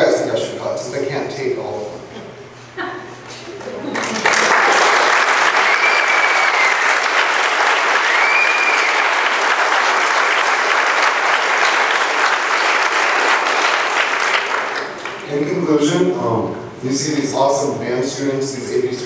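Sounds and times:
audience clapping: 0:03.6 - 0:15.6
high cries: 0:05.5 - 0:07.2, 0:07.9 - 0:09.2.

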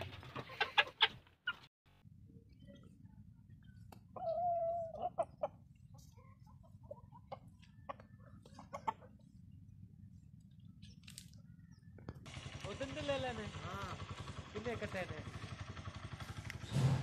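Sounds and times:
chickens clucking: 0:00.0 - 0:01.7, 0:03.9 - 0:09.4.

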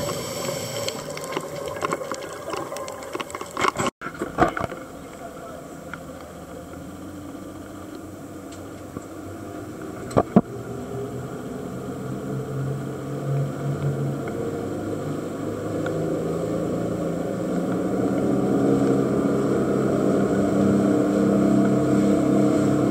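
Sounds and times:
outboard motor speeding up: 0:04.6 - 0:22.9.

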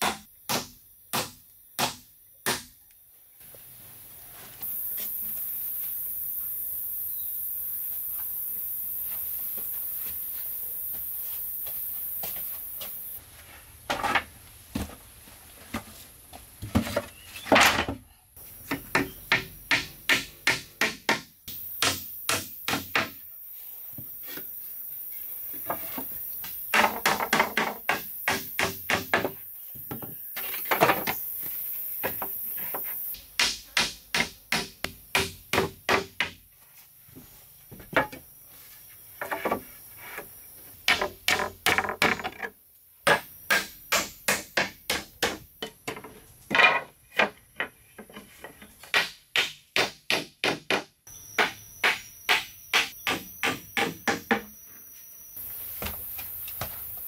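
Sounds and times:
hatchet knocking nails into wood: 0:48.9 - 0:54.5.

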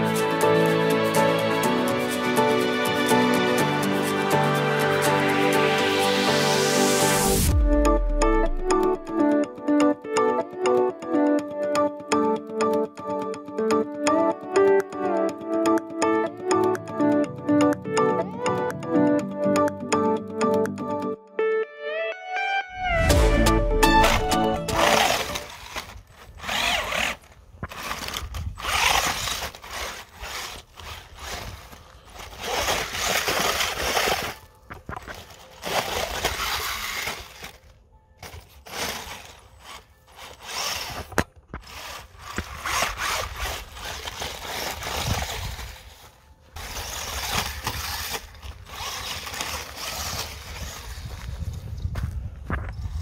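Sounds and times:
toy car electric motor whining: 0:24.1 - 0:37.7, 0:38.7 - 0:46.0, 0:46.6 - 0:51.3.

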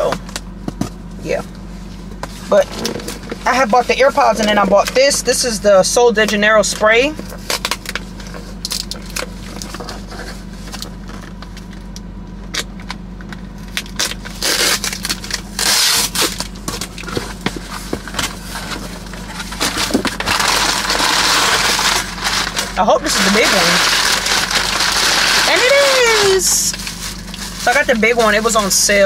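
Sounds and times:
paper crinkling and rustling: 0:13.8 - 0:29.0.

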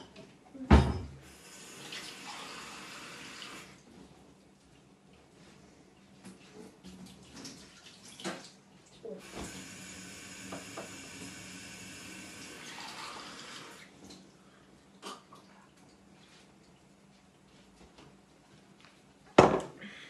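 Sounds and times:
kitchen tap running: 0:01.2 - 0:03.8, 0:06.9 - 0:14.0.

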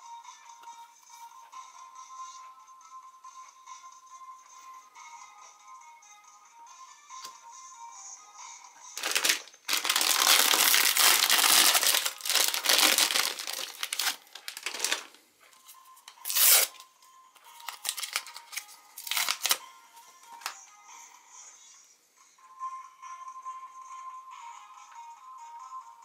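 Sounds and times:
quiet background music: 0:00.0 - 0:26.0
paper ripping and rustling: 0:09.0 - 0:15.2, 0:16.2 - 0:16.8, 0:17.7 - 0:19.6
plastic wrapper crinkling and tearing: 0:09.0 - 0:15.2, 0:16.2 - 0:16.8, 0:17.6 - 0:19.6.

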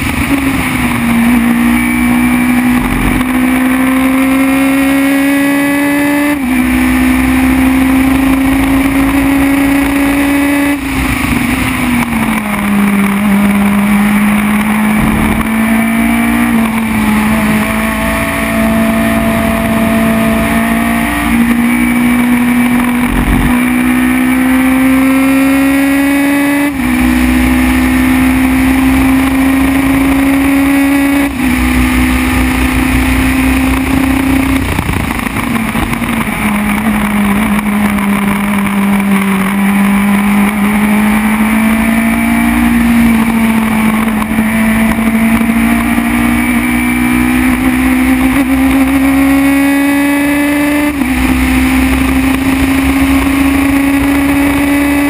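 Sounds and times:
racing car engine at full throttle: 0:00.0 - 0:55.0
wind noise: 0:08.1 - 0:27.2, 0:28.8 - 0:40.7.

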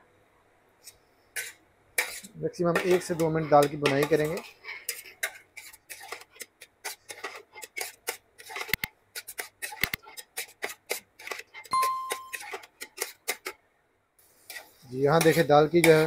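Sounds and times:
metal spatula scraping a pot: 0:00.8 - 0:13.6, 0:14.4 - 0:16.0
short electronic tone: 0:11.8 - 0:12.4.

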